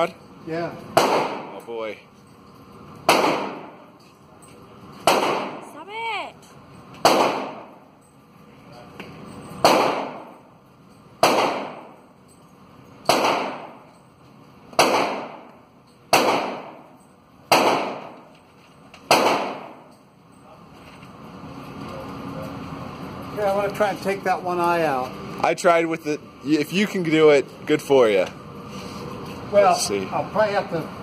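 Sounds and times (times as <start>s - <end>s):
rifle shots reverberating: 1.0s - 1.5s, 3.1s - 3.8s, 5.0s - 5.6s, 7.0s - 7.7s, 9.6s - 10.4s, 11.2s - 12.0s, 13.1s - 13.8s, 14.8s - 15.5s, 16.1s - 16.8s, 17.5s - 18.2s, 19.1s - 19.8s.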